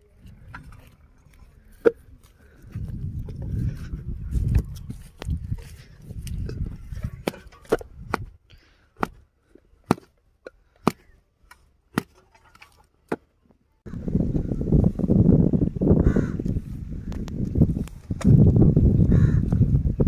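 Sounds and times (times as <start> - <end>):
hoe chopping dry soil: 7.0 - 8.4, 9.0 - 9.2, 9.8 - 10.2, 10.8 - 12.2.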